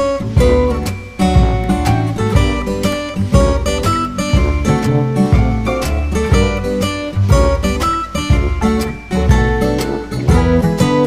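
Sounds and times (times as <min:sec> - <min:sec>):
guitar background music: 0:00.0 - 0:11.0
deep bass note: 0:04.4 - 0:10.9.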